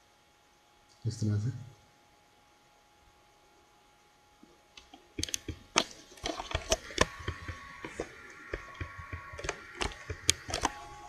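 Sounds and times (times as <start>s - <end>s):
faint steady hum: 0.0s - 11.0s
sharp clicks and taps: 4.8s - 10.8s.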